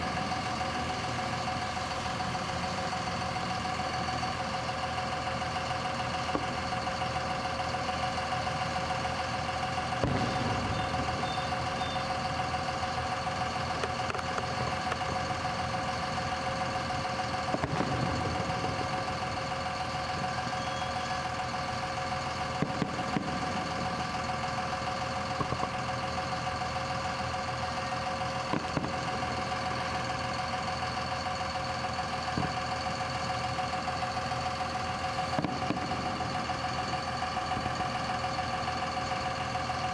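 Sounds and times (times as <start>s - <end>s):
droning hum: 0.0s - 39.9s
fireworks bursting with sharp pops: 9.9s - 12.5s, 13.2s - 15.3s, 17.3s - 19.0s, 22.4s - 24.0s, 28.4s - 29.3s, 35.2s - 36.2s.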